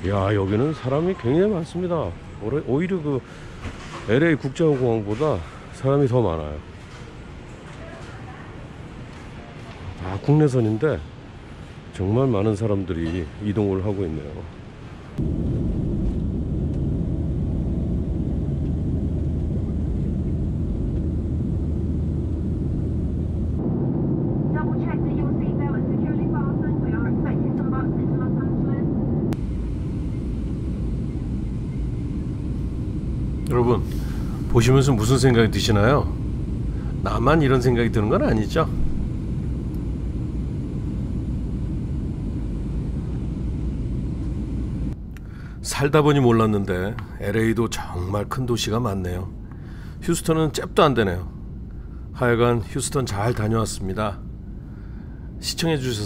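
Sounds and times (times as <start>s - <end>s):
rushing air in cabin: 14.7s - 45.8s
runway rumble: 15.1s - 45.0s
jet engines at takeoff power: 15.1s - 45.7s, 49.3s - 55.8s.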